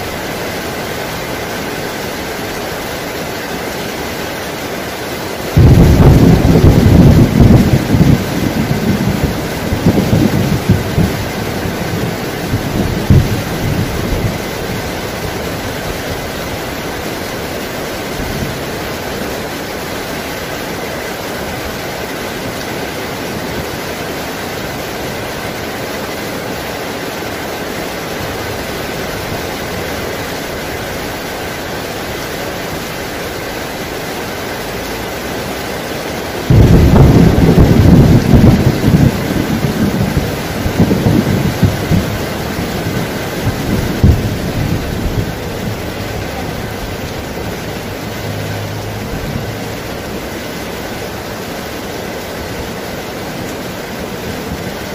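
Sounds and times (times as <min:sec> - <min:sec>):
heavy rain falling: 0:00.0 - 0:54.9
thunder clap and rumble: 0:05.5 - 0:16.5, 0:36.4 - 0:50.1.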